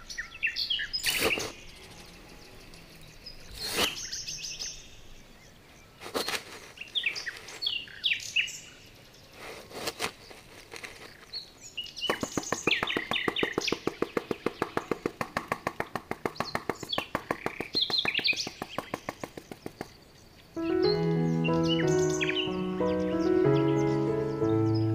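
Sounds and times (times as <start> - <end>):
birds chirping: 0.0 - 24.9
trowel scraping damp sand: 1.0 - 1.6, 3.4 - 4.3, 6.0 - 7.9, 9.3 - 11.3.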